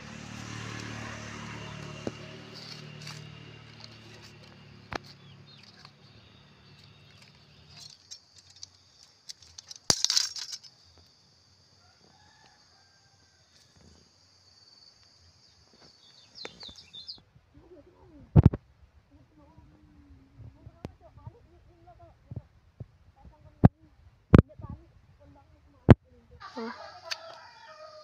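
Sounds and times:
plastic tape crinkling: 2.0 - 6.0.

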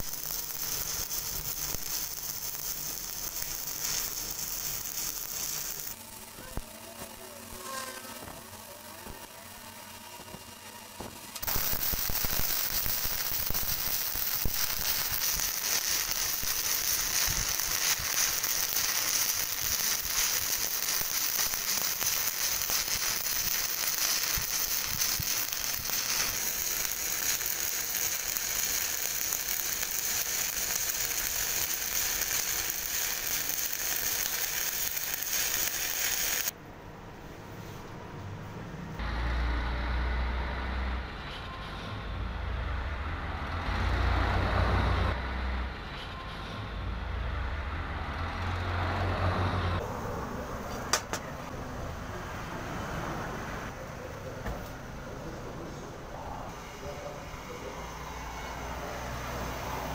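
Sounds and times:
welding arc crackling: 0.0 - 9.4, 11.3 - 36.6.

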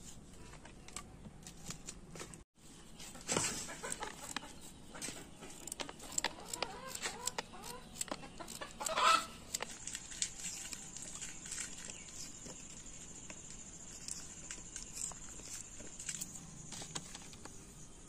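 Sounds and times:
chickens clucking: 3.2 - 9.6.

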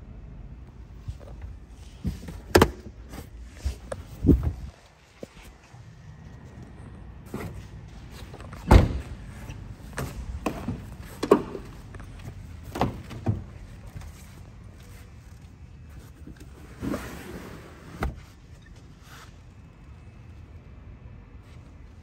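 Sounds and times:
car trunk lid slamming: 8.6 - 9.2.

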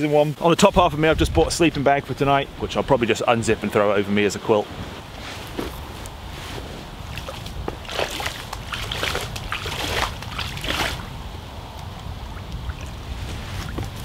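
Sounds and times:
low wind rumble: 0.0 - 14.0
water splashing and sloshing: 4.7 - 14.0.

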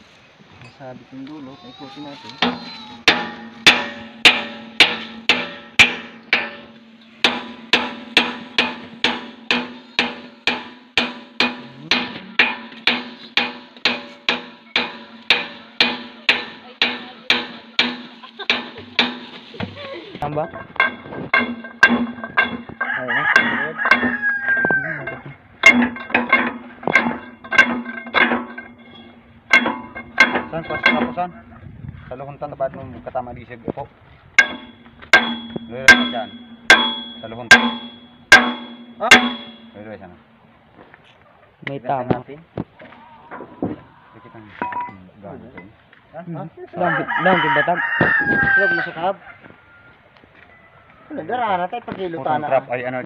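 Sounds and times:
hammer striking steel pin: 2.4 - 19.4, 20.4 - 24.3, 25.0 - 31.2, 34.4 - 40.1
rooster crowing: 22.8 - 25.1, 46.8 - 51.2
hammer blows on steel: 34.4 - 40.4.

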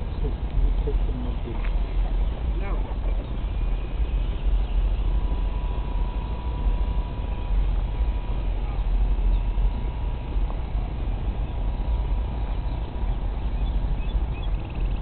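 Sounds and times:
faint thin whine: 0.0 - 15.0
wind buffeting microphone: 0.0 - 15.0.

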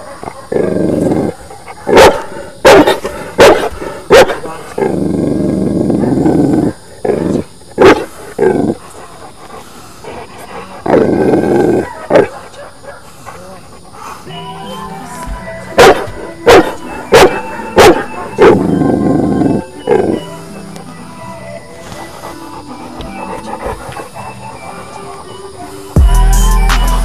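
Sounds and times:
dog growling: 0.0 - 14.3, 15.8 - 26.0
dog barking: 1.3 - 4.5, 11.8 - 13.1, 15.8 - 18.7.

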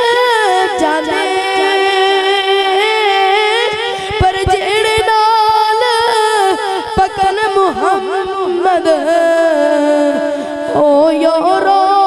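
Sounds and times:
boy singing into microphone: 0.0 - 12.0.

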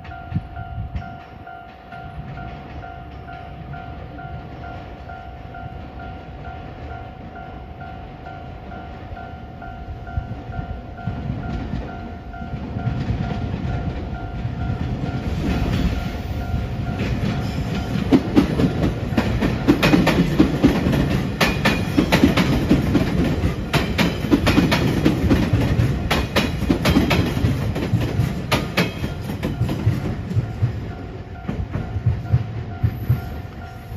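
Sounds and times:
electric train rumble: 0.0 - 33.9
wheels clicking over rail joints: 11.0 - 33.9.

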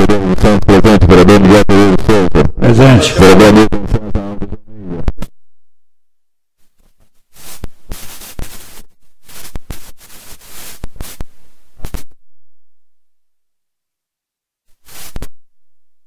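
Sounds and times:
crackling rustling noise: 6.6 - 12.2, 14.7 - 15.4.

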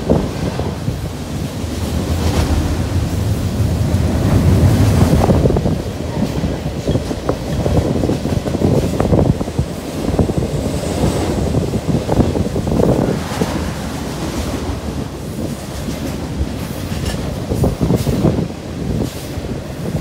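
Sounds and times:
diesel locomotive rumble: 0.0 - 20.0
train wheels clicking on rails: 0.0 - 20.0.

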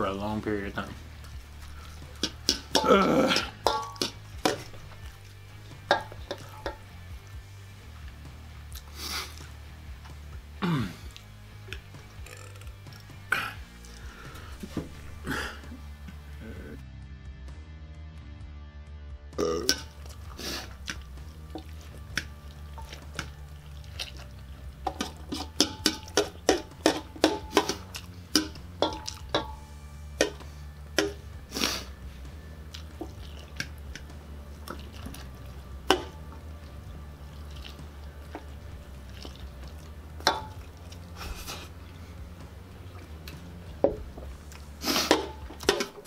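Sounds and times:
clicks against metal bowl: 3.6 - 4.8, 5.8 - 6.9, 24.8 - 29.6
pasta being slurped: 20.0 - 26.6, 32.7 - 40.0.

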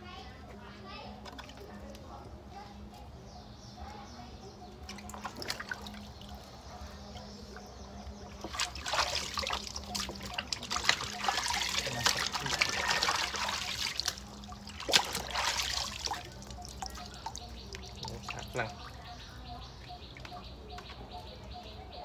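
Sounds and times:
hands plucking wet chicken feathers: 8.4 - 18.9.

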